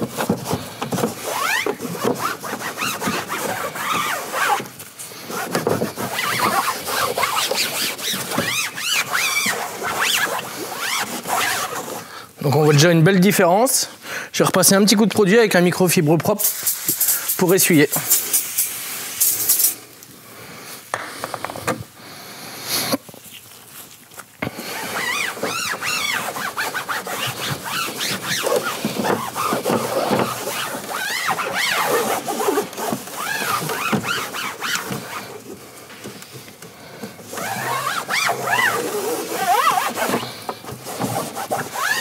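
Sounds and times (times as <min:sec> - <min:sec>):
cloth squeaking on plastic: 0:00.0 - 0:12.1, 0:24.6 - 0:35.8, 0:37.2 - 0:42.0
aerosol spray hissing: 0:16.4 - 0:19.8.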